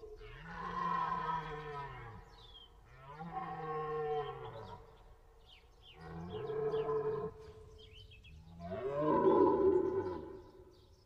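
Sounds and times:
small birds chirping: 1.5 - 3.3, 4.2 - 11.0.

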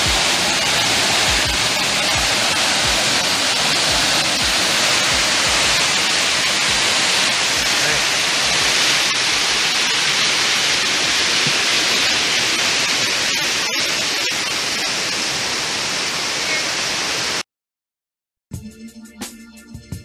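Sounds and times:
creek rushing over boulders: 0.0 - 17.4
music with a beat: 18.5 - 20.0.

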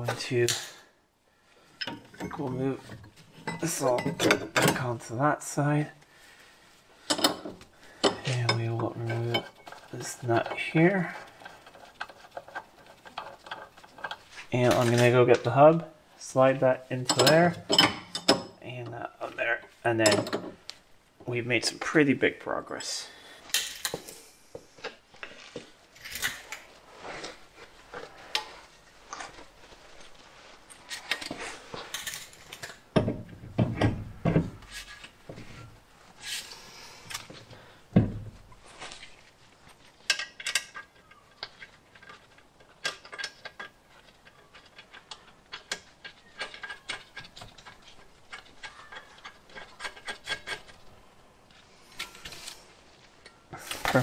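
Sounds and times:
rustling: 5.0 - 17.6, 18.7 - 32.9, 34.0 - 54.0
metallic clicks and knocks: 16.9 - 18.6, 19.6 - 20.7, 40.0 - 50.8.

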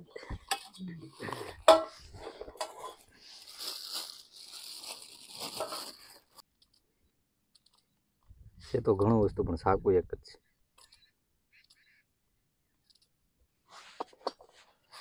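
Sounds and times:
plastic packet crinkling and tearing: 3.2 - 6.4.

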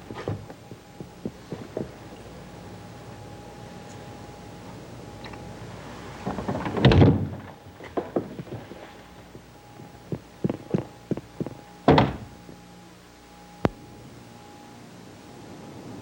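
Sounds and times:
faint steady hum: 0.0 - 16.0
dull knocks and thuds: 10.1 - 12.3.

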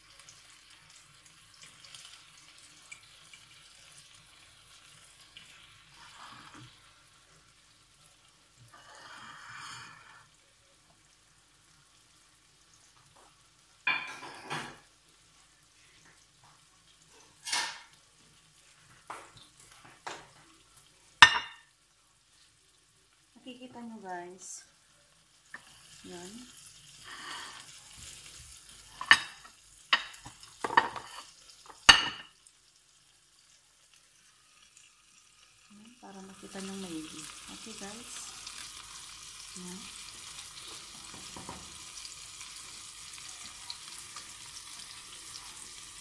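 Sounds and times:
bread frying in a pan: 0.0 - 46.0
loud sizzle: 0.0 - 46.0
kitchenware clattering: 13.9 - 14.8, 17.3 - 18.0, 21.2 - 21.7, 28.9 - 32.4, 41.0 - 41.8.

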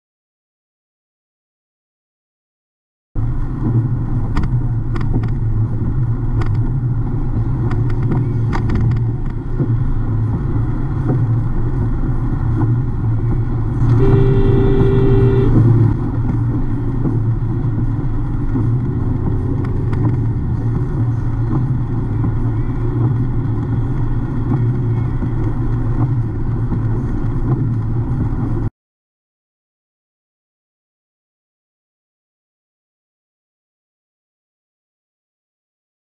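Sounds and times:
car engine and wet tyre noise: 3.2 - 28.7
car horn: 13.8 - 15.9.

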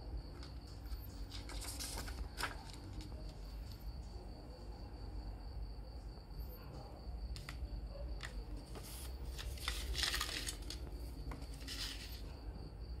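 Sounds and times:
paper booklet rustling: 0.3 - 3.8, 8.2 - 12.4.

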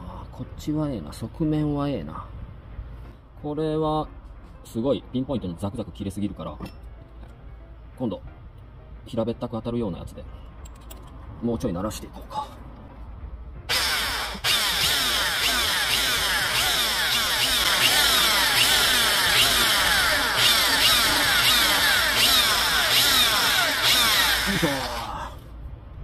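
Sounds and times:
rotary tool grinding metal: 13.7 - 25.2.

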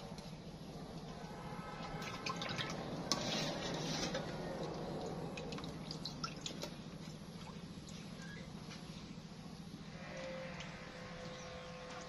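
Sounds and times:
water splashing in plastic basin: 2.0 - 7.6.

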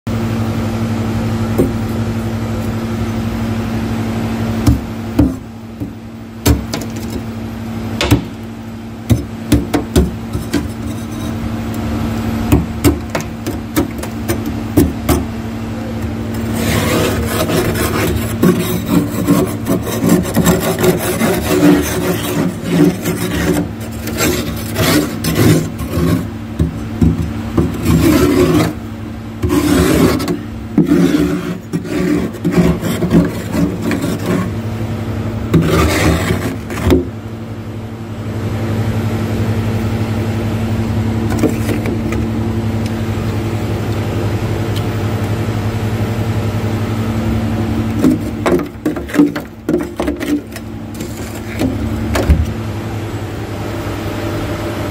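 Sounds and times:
frost being scraped: 10.3 - 11.5, 16.3 - 28.8, 29.4 - 34.6, 35.5 - 37.1, 48.0 - 51.8.

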